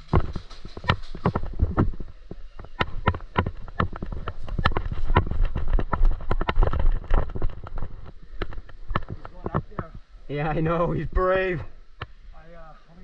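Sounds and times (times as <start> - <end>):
rattle of carried gear: 0.0 - 9.4
running footsteps: 0.0 - 10.0
low rumble of movement: 0.0 - 10.1.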